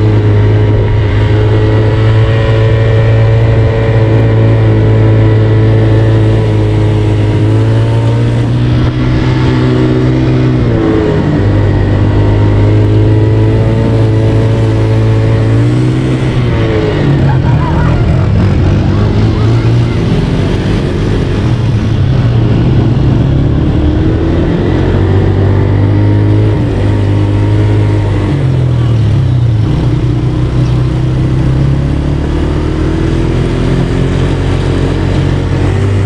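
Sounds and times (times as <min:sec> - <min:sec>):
buggy engine running: 0:00.0 - 0:36.0.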